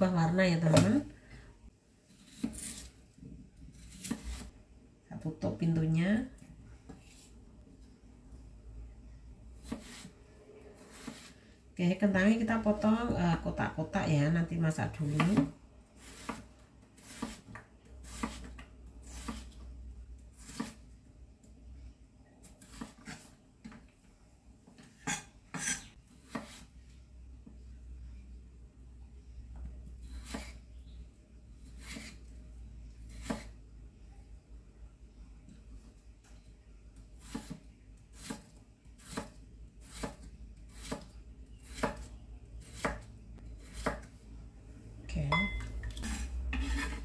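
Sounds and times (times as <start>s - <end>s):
knife scraping cutting board: 2.1s - 3.0s, 3.7s - 4.5s, 9.6s - 10.2s, 10.8s - 11.4s, 16.0s - 19.6s, 20.4s - 20.8s, 22.6s - 23.4s, 25.0s - 26.8s, 30.0s - 30.6s, 31.6s - 32.3s, 43.6s - 44.1s, 45.9s - 47.0s
knife chopping on cutting board: 17.0s - 19.5s, 37.2s - 37.6s, 38.2s - 44.1s
knife chopping on wooden board: 41.7s - 44.1s.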